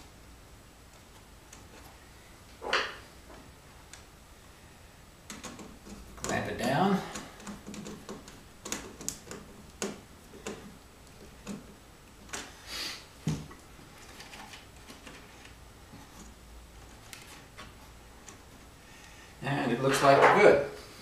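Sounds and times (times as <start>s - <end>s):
hands clicking and tapping wires: 0.9s - 2.0s, 5.2s - 12.6s, 13.2s - 18.7s.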